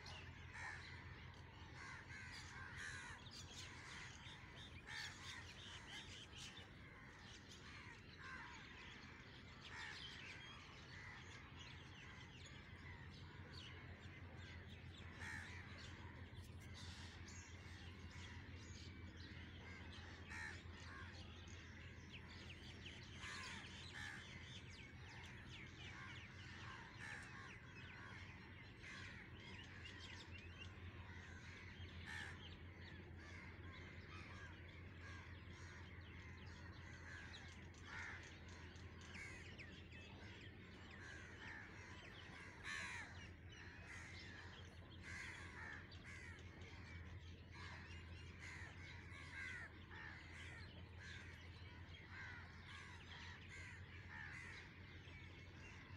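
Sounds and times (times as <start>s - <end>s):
birds calling harshly: 0.0s - 55.9s
steady low hum: 0.0s - 55.9s.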